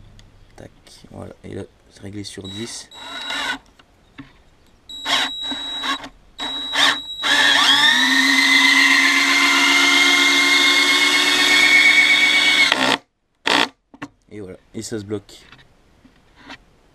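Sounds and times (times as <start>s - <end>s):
cordless drill driving screw: 2.5s - 3.7s, 5.0s - 13.7s.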